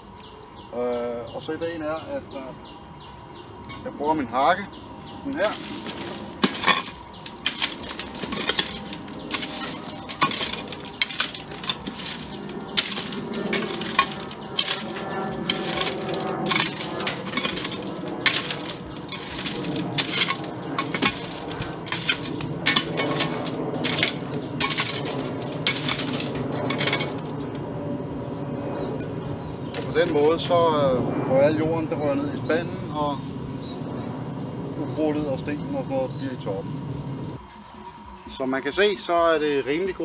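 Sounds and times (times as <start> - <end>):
hoe scraping soil on sieve: 5.4 - 27.4
stones clinking on metal mesh: 5.4 - 27.4.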